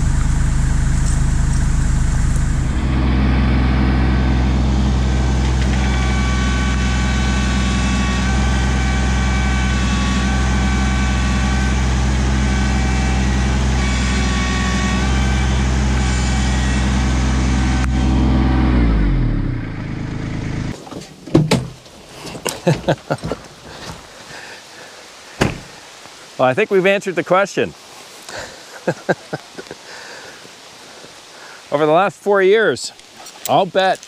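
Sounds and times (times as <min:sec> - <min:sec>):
diesel tractor engine running: 0:00.0 - 0:20.8
engine winding down: 0:00.0 - 0:20.8
high whine: 0:00.0 - 0:20.8.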